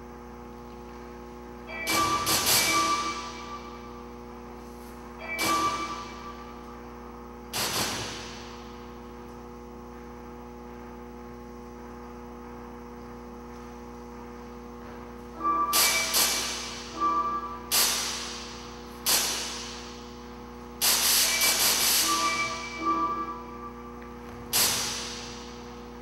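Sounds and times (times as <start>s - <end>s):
electrical hum: 0.0s - 26.0s
electronic ringing sounds: 1.6s - 4.1s, 5.1s - 6.9s, 15.4s - 17.7s, 21.2s - 24.1s.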